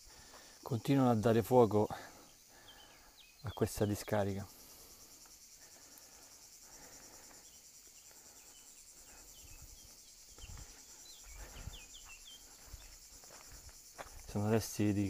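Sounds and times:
insect chirring: 0.0s - 15.0s
bird chirps: 2.3s - 4.3s, 7.4s - 13.0s.

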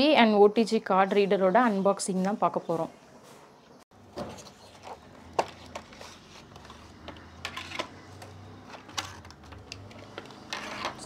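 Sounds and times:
packaging crinkling and clicking: 4.5s - 11.0s.

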